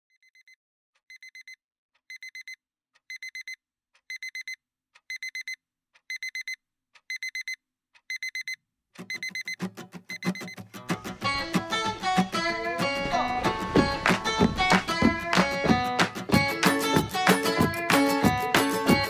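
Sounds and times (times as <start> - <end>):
phone alarm beeping: 1.1 - 10.6.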